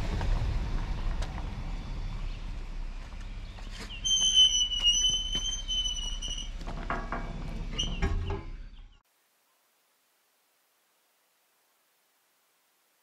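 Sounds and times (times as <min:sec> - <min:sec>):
gate hinge squealing: 0:03.9 - 0:08.6
metal gate clanking: 0:04.0 - 0:08.6.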